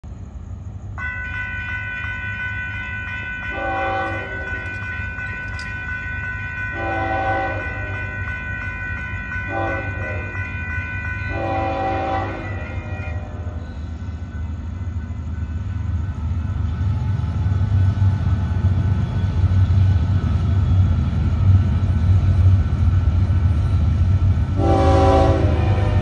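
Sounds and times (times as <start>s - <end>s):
crossing warning bell ringing: 0.9s - 26.0s
locomotive horn blasts: 1.3s - 4.9s, 6.6s - 8.8s, 9.5s - 13.9s, 24.6s - 26.0s.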